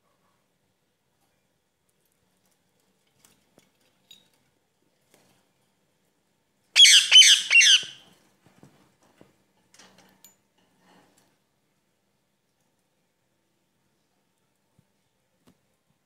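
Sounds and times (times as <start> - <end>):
parakeet squawking: 6.8 - 8.0.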